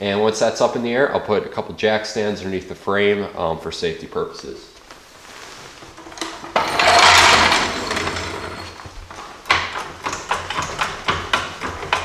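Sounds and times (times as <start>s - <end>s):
floor jack scraping on concrete: 5.2s - 12.0s
metal clicks and knocks: 5.9s - 12.0s.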